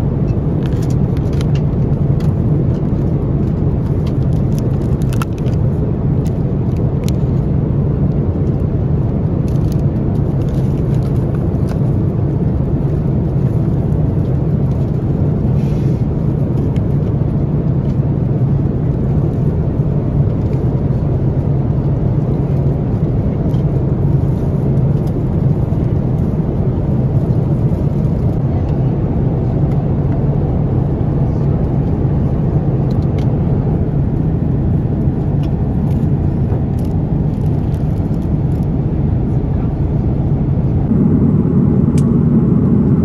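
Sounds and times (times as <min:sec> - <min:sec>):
jet engines roaring: 0:40.2 - 0:43.0
rushing airflow: 0:40.7 - 0:43.0.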